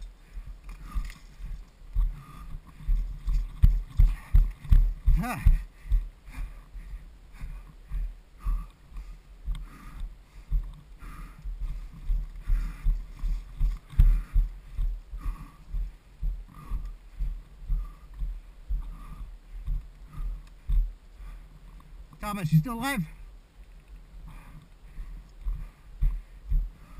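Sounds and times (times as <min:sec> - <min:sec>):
footsteps on dry dirt: 0:00.0 - 0:26.9
clothing and gear rustling: 0:00.6 - 0:05.0.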